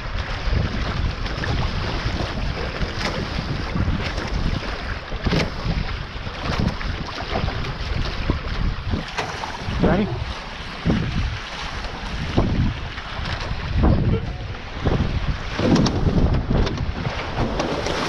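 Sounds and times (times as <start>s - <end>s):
water rushing along hull: 0.0s - 18.0s
water splashing: 0.0s - 18.0s
wind buffeting microphone: 0.0s - 18.0s.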